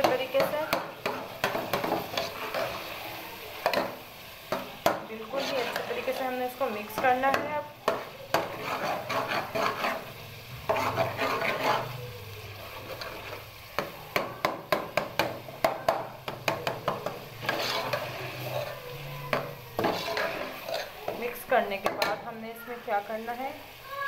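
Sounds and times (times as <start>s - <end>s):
spoon scraping metal pot: 0.0s - 3.0s, 3.6s - 12.0s, 12.6s - 13.9s, 16.6s - 22.2s
light sizzle of frying: 0.0s - 24.0s
spoon knocking against pot: 13.8s - 17.6s.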